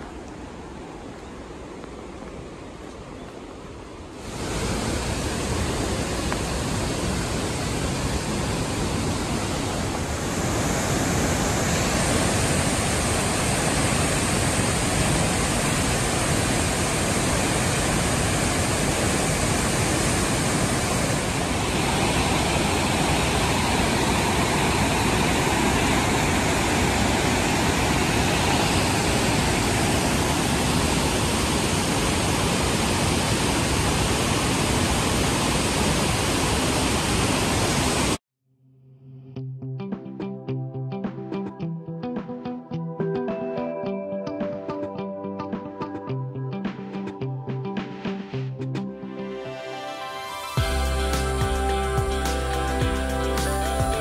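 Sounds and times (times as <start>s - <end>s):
rushing waterfall and river: 0.0s - 38.2s, 49.1s - 54.0s.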